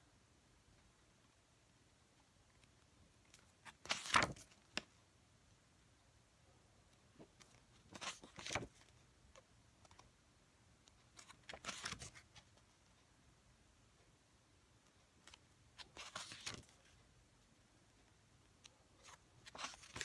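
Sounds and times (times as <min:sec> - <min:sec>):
photobook pages being turned: 0:03.3 - 0:04.9, 0:07.3 - 0:09.0, 0:11.0 - 0:12.7, 0:15.2 - 0:17.0, 0:19.0 - 0:20.0.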